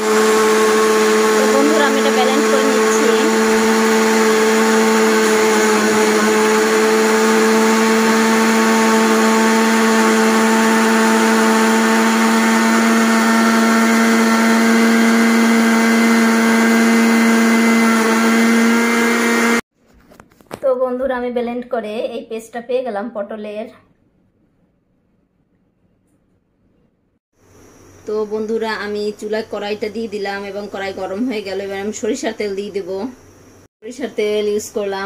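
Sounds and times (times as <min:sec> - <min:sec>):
blender motor running: 0:00.0 - 0:19.6.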